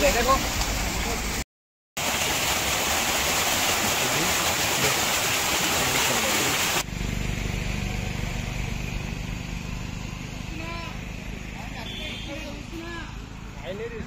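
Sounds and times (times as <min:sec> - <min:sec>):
waterfall rushing: 0:02.0 - 0:06.9.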